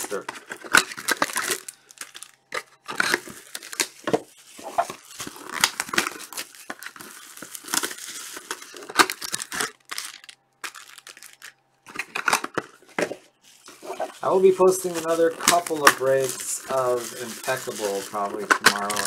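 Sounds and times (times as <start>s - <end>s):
cellophane crinkling and tearing: 0.0s - 19.0s.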